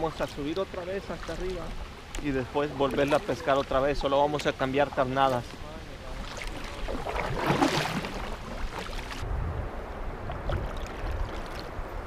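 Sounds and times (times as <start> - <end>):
faint water clicks: 0.0 - 5.6, 10.2 - 12.0
water splashing around kayak: 0.0 - 9.3, 9.9 - 12.0
wind rumble on microphone: 6.7 - 12.0.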